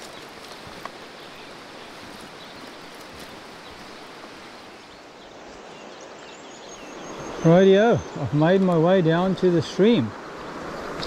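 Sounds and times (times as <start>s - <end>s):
footsteps on leaves: 0.0s - 4.4s
stream water rushing: 0.0s - 11.0s.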